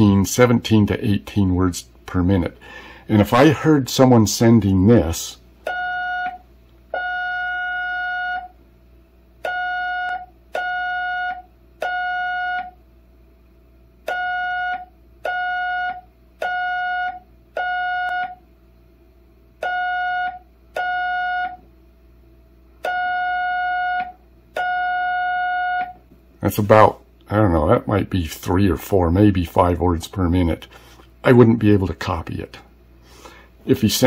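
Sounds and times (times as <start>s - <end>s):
slow morse code beeping: 5.7s - 8.6s, 9.4s - 12.8s, 14.1s - 18.4s, 19.6s - 21.6s, 22.8s - 26.0s.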